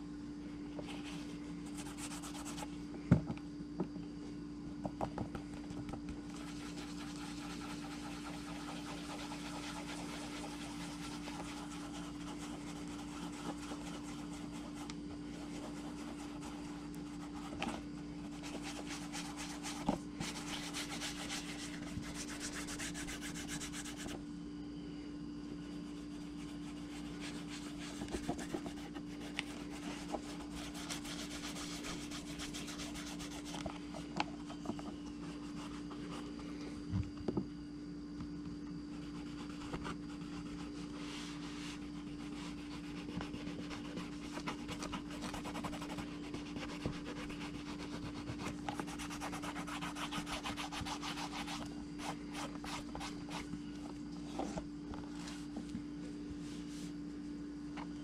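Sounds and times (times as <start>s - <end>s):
rubbing on leather sheath: 6.3s - 24.2s, 25.8s - 33.7s, 39.1s - 53.5s.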